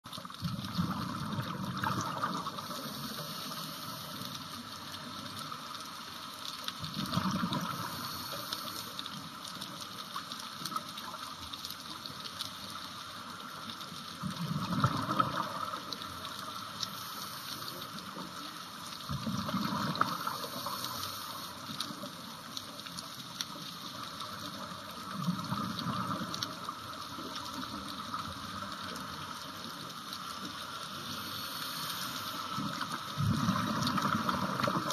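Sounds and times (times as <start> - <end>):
rush of bubbles: 0.1 - 4.3, 6.8 - 8.8, 14.2 - 16.2, 19.0 - 21.6, 30.8 - 34.9
underwater hiss: 0.6 - 6.2, 7.0 - 9.7, 14.5 - 22.3, 30.2 - 34.9.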